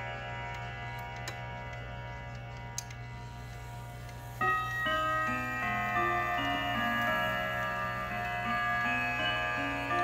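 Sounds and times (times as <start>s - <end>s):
wall clock chiming: 3.4s - 10.0s.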